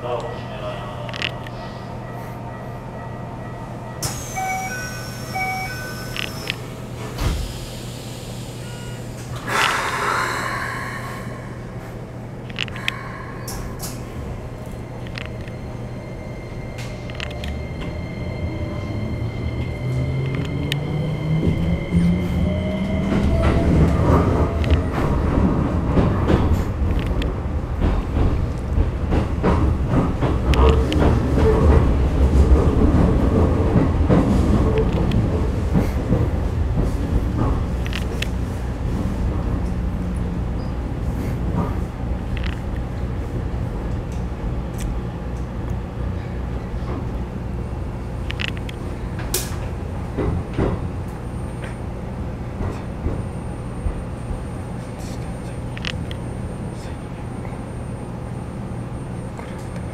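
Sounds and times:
electric train humming: 0.0s - 59.9s
train inverter rising tone: 0.4s - 9.3s, 12.9s - 26.3s
electronic chime tones: 1.5s - 6.6s
train doors sliding shut: 4.0s - 10.2s
wheels clattering on rails: 22.8s - 38.4s.

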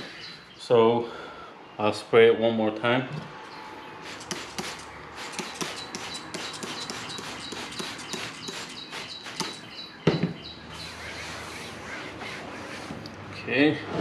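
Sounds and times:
spray bottle squirting: 4.0s - 9.7s
thump: 10.1s - 10.4s.

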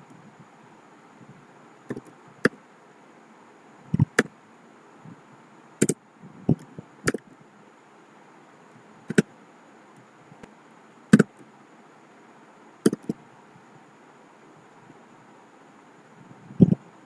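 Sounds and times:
computer keyboard typing: 12.9s - 13.2s.

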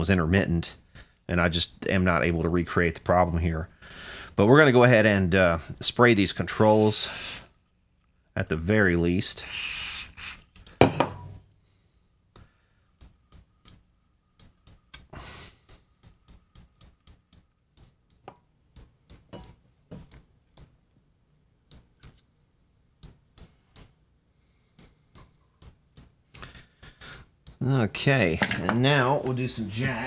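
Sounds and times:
spray can hissing bursts: 6.9s - 7.5s, 9.4s - 10.5s
clicks and taps on metal: 15.7s - 20.8s.

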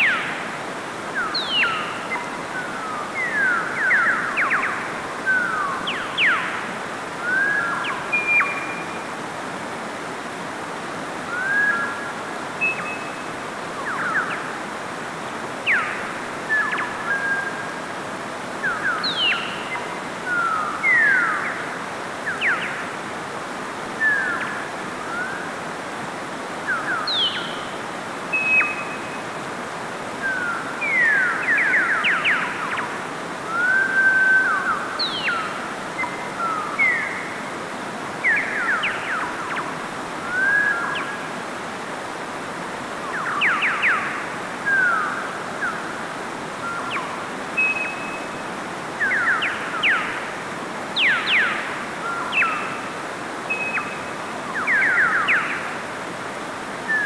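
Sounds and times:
stream rushing over rocks: 0.0s - 57.0s
birds whistling and chirping: 1.2s - 6.6s, 7.2s - 9.1s, 11.3s - 14.5s, 15.6s - 17.7s, 18.6s - 21.6s, 26.7s - 27.7s, 28.3s - 29.3s, 30.2s - 37.4s, 38.2s - 41.2s, 43.0s - 45.9s, 46.6s - 50.2s, 51.0s - 55.7s.

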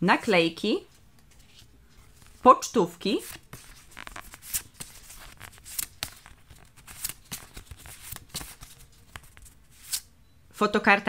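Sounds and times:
paper clicks and rustles: 3.2s - 10.1s.

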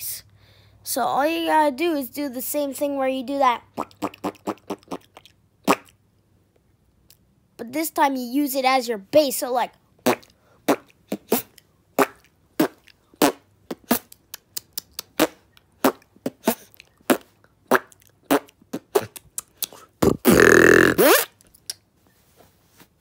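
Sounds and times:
beatboxing: 3.8s - 6.0s, 10.0s - 21.4s.

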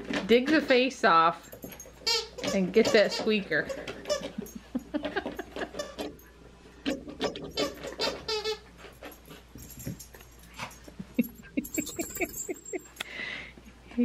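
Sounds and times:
dog chewing toy: 1.6s - 11.0s
toy squeaker squeaks: 2.0s - 4.3s, 7.2s - 8.7s.

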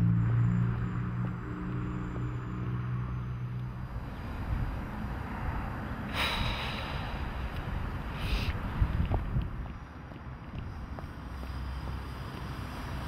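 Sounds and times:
wind buffeting microphone: 3.9s - 11.4s.

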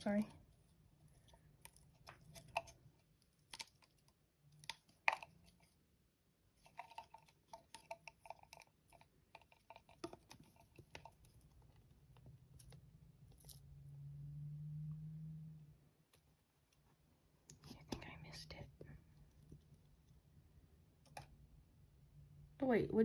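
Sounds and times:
low hum: 13.0s - 16.0s.

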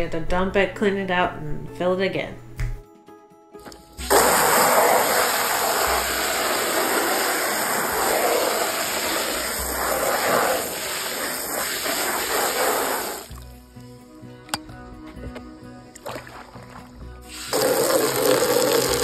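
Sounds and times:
hose spraying water into tank: 4.0s - 13.5s, 16.0s - 19.0s.

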